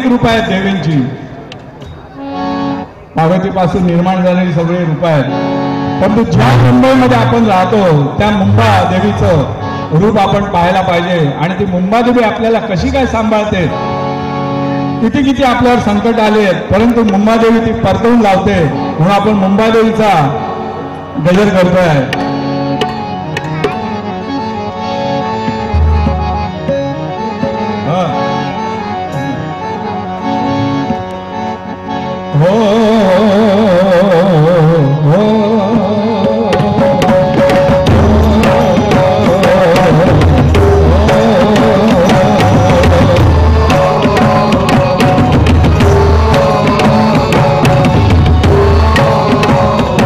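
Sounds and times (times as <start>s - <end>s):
harmonium melody: 0.0s - 50.0s
voices singing: 35.1s - 50.0s.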